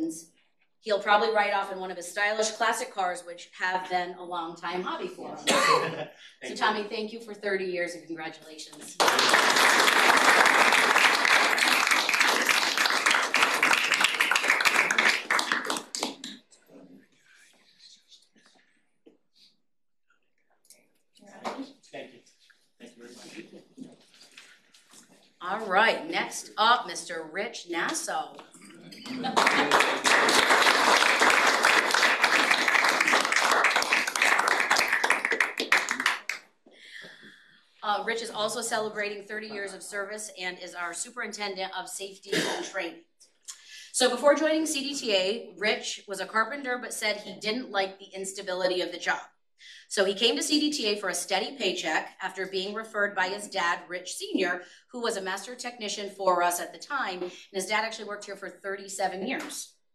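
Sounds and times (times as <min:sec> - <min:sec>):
people clapping: 0:08.7 - 0:16.4, 0:28.9 - 0:36.5
group applauding: 0:08.9 - 0:16.4, 0:28.9 - 0:36.5.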